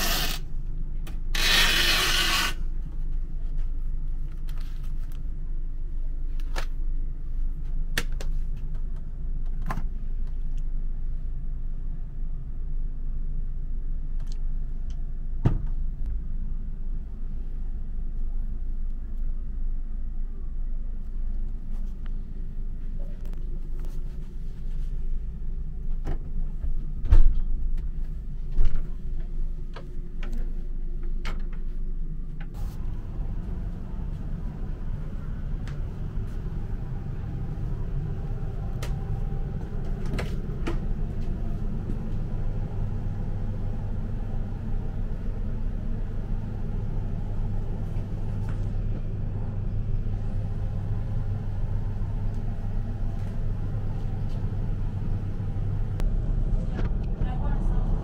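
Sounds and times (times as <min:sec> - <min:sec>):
low rumble: 0:31.7 - 0:58.0.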